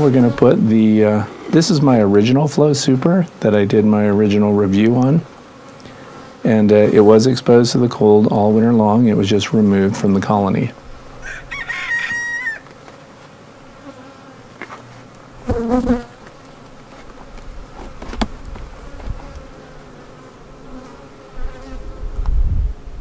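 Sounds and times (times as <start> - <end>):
honey bees buzzing: 0.0 - 23.0
chickens calling: 11.1 - 13.0.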